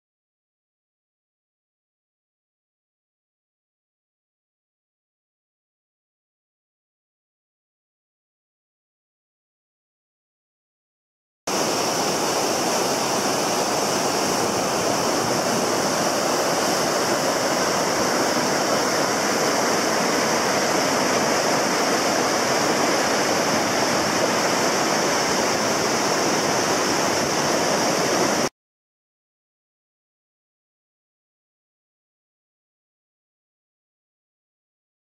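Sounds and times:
river rushing: 11.5s - 28.5s.

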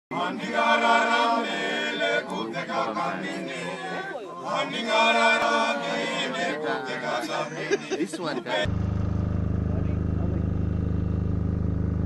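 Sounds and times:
men singing in harmony: 0.1s - 8.7s.

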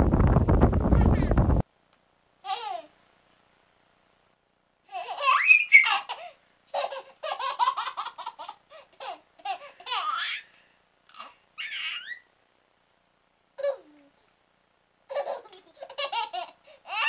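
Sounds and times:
baby laughing: 2.4s - 2.9s, 4.9s - 12.3s, 13.6s - 14.1s, 15.1s - 17.0s
baby squealing: 5.0s - 6.2s, 11.2s - 12.3s, 15.1s - 17.0s.

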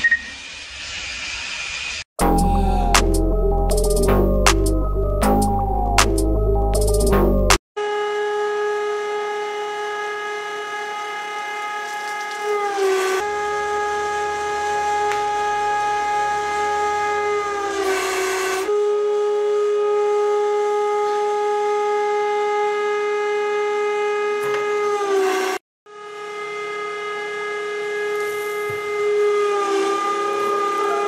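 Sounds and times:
hydraulic press whine: 13.2s - 19.4s.

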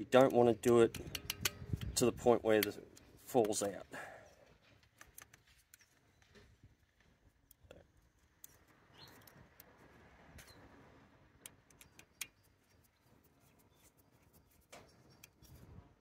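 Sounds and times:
screwdriver on terminal screws: 0.1s - 3.7s
small clicks and taps: 0.1s - 3.7s, 4.6s - 9.8s, 11.4s - 15.6s
sharp click: 0.2s - 2.8s.

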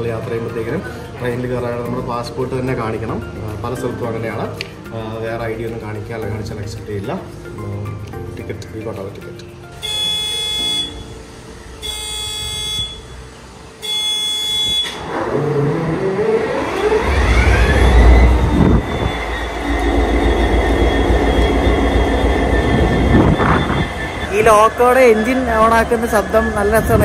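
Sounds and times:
high-pitched engine whine: 9.8s - 27.0s
locomotive engine starting up: 9.8s - 27.0s.

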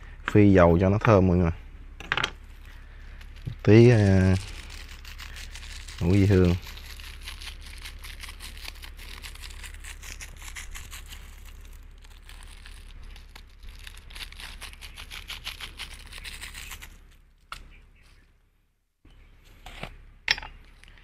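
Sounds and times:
steady low hum: 0.0s - 21.0s
plastic packet crinkling: 2.7s - 16.9s.

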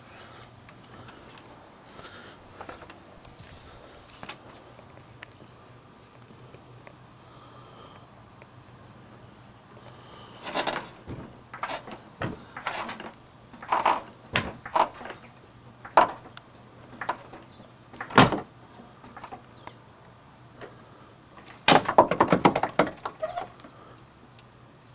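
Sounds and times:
floor jack creaking against engine: 10.3s - 19.5s, 21.4s - 23.9s
rubber mount tearing and flexing: 10.4s - 15.2s.

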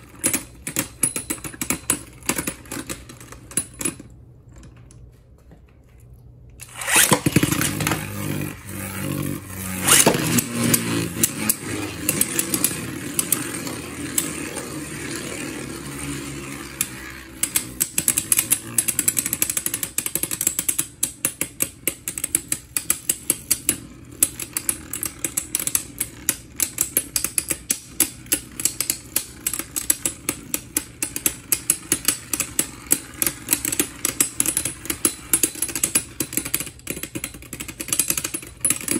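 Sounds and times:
spinning tops clacking together: 6.6s - 21.0s
spinning tops whirring: 6.6s - 21.0s, 21.6s - 38.9s.

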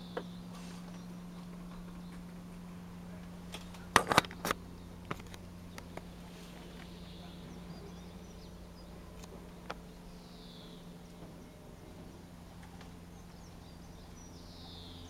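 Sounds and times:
steady low hum: 0.0s - 15.0s
sharp clicks and knocks: 3.5s - 6.1s.

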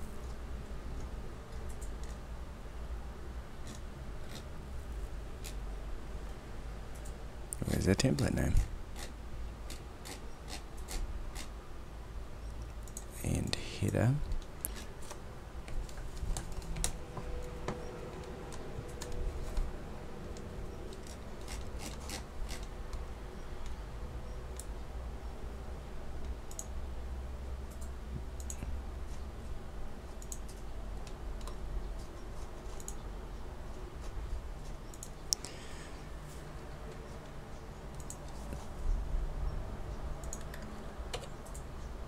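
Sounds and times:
steady low hum: 0.0s - 42.0s
mouse and keyboard clicks: 30.2s - 33.0s, 40.2s - 41.7s.

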